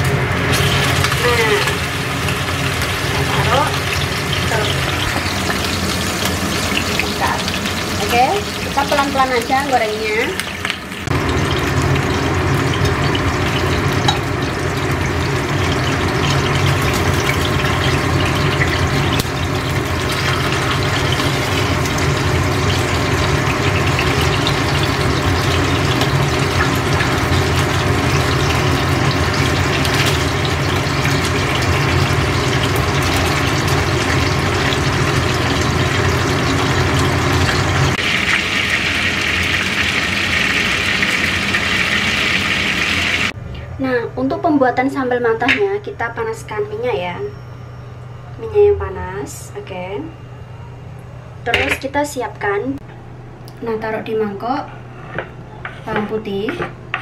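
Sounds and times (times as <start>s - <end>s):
fish sizzling in hot oil: 0.0s - 43.4s
low hum: 45.9s - 57.0s.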